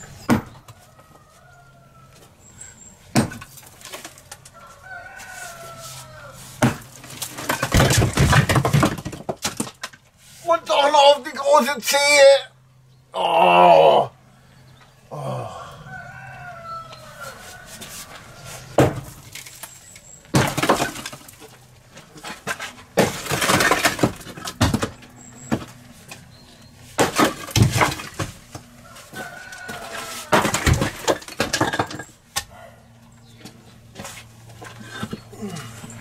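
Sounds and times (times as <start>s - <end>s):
hammer blows cracking concrete: 6.6s - 9.8s, 22.2s - 25.0s
concrete chunks clattering down: 6.6s - 10.0s, 19.2s - 25.7s, 27.0s - 28.4s, 29.7s - 32.2s.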